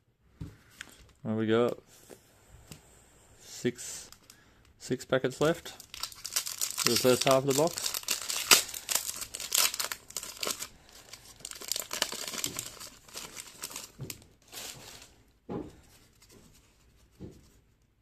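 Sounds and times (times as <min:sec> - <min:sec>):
foil wrapper crinkling and tearing: 0:05.6 - 0:15.1.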